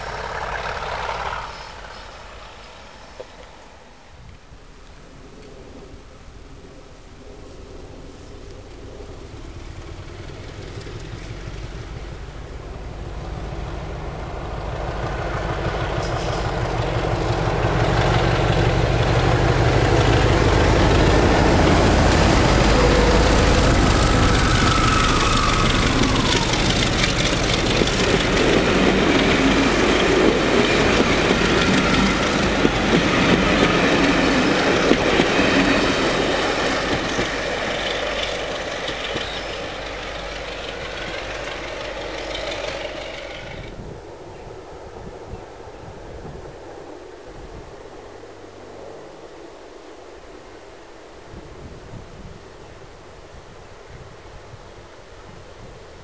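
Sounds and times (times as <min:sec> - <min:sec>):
diesel locomotive engine rumble: 0:00.0 - 0:49.1
wheels clattering over rail joints: 0:09.0 - 0:43.8.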